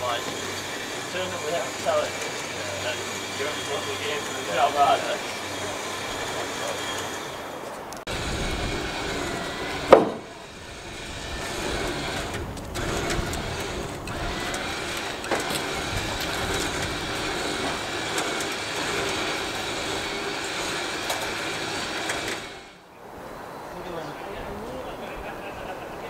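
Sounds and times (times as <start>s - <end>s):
lorry engine running: 0.0s - 22.9s
loud metal clank: 9.8s - 10.4s.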